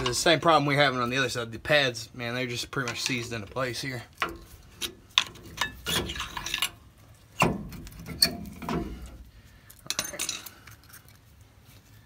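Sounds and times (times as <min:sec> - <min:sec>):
metal knocks and scrapes: 0:04.2 - 0:06.8, 0:07.4 - 0:09.3.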